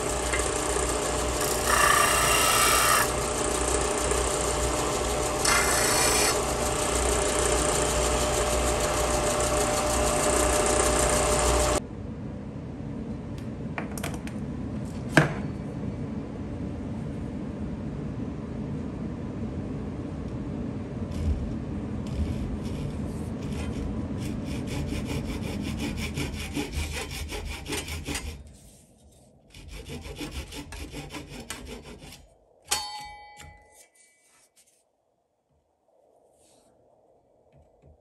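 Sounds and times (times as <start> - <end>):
hand saw cutting wood: 0.0 - 11.8, 22.1 - 28.8, 29.5 - 32.3
sharp metallic clink: 32.7 - 34.0.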